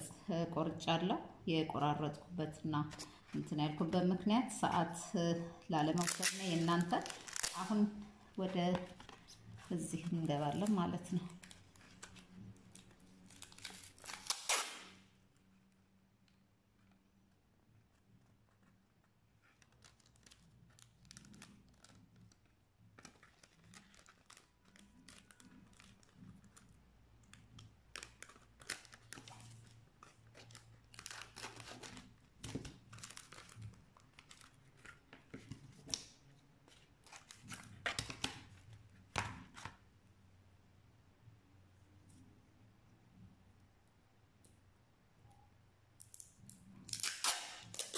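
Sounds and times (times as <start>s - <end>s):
tape crinkling: 5.8s - 15.1s, 19.4s - 39.8s, 46.0s - 47.9s
packing tape ripping: 6.0s - 7.8s, 11.4s - 15.0s, 27.9s - 35.0s, 46.8s - 47.9s.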